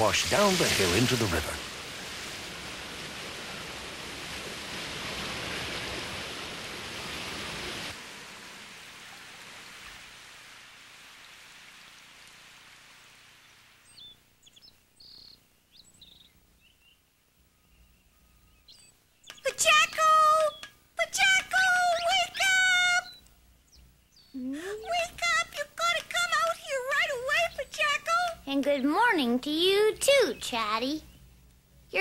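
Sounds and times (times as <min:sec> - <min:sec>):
steady rain: 0:00.0 - 0:14.5
wind: 0:00.0 - 0:32.0
bird chirps: 0:13.8 - 0:20.8, 0:21.8 - 0:24.4.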